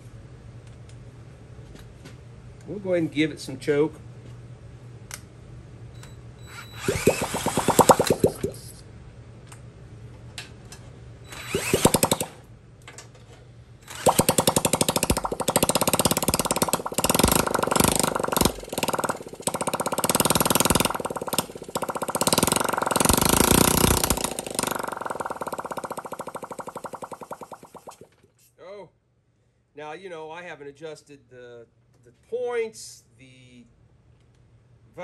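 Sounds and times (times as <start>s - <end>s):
small motorcycle engine rattly beat: 6.9s - 8.5s, 11.7s - 12.3s, 14.0s - 28.1s.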